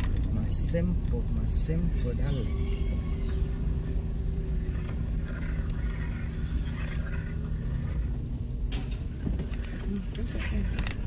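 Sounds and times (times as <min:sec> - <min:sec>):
car engine running: 0:00.0 - 0:11.0
low road rumble: 0:00.0 - 0:11.0.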